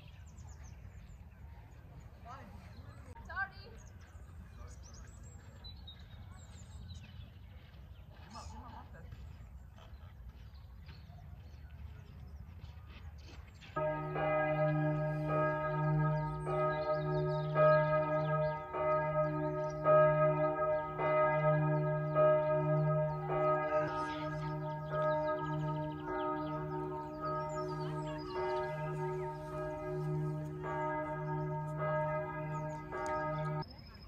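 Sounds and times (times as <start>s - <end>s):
church bells pealing: 13.8s - 33.7s.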